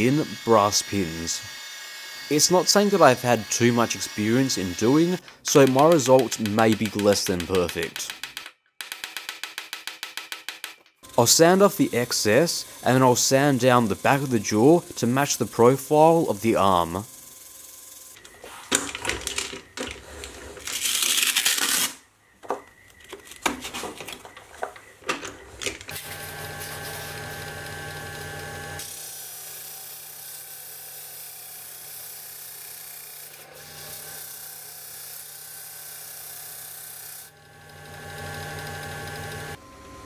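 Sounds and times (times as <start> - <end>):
metal grinding on sanding disc: 11.2 - 17.1
motor whine: 25.9 - 28.8, 37.3 - 40.0.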